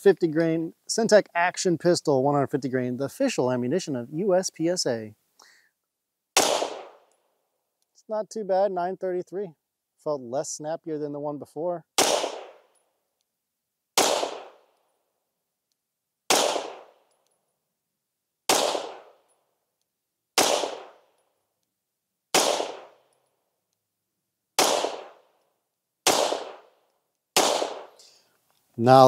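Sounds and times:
pistol shots: 6.4s - 7.2s, 12.0s - 12.8s, 14.0s - 14.7s, 16.3s - 17.1s, 18.5s - 19.3s, 20.4s - 21.2s, 22.3s - 23.1s, 24.6s - 25.4s, 26.0s - 26.8s, 27.4s - 28.0s.

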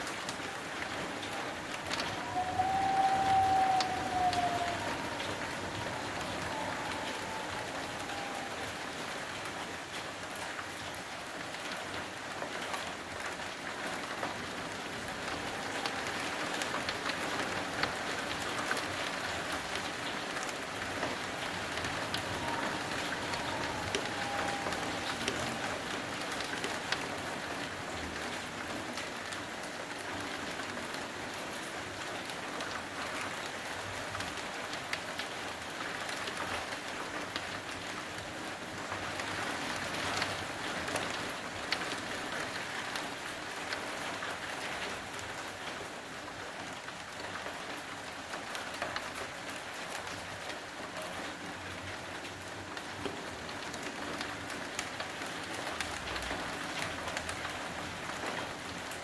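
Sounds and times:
raindrops ticking on surfaces: 0.0s - 59.0s
heavy rain hissing: 0.5s - 10.2s, 13.9s - 29.0s.

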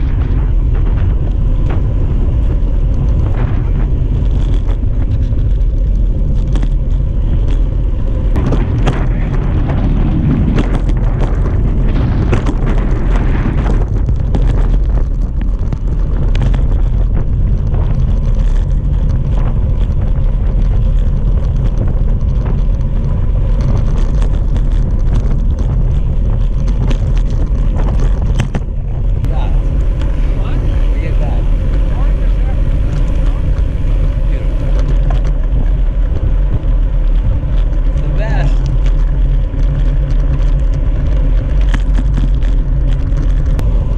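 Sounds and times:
tyre and road noise: 0.0s - 43.9s
wind buffeting microphone: 0.0s - 43.9s
small clicks and knocks: 13.6s - 29.2s, 34.6s - 43.9s.

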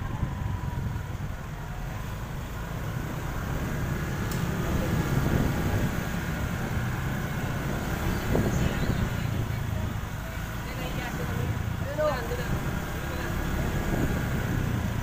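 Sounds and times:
wind on microphone: 0.0s - 1.5s, 3.0s - 10.2s, 13.5s - 15.0s
road rumble: 0.0s - 15.0s.

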